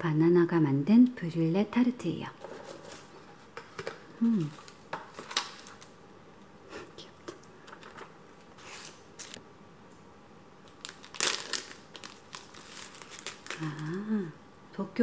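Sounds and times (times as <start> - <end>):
plastic packaging crinkling: 2.5 - 6.0, 10.6 - 14.0.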